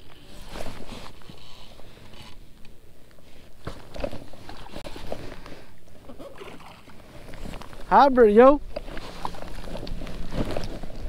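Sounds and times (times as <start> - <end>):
jacket fabric rustling: 8.7 - 11.0.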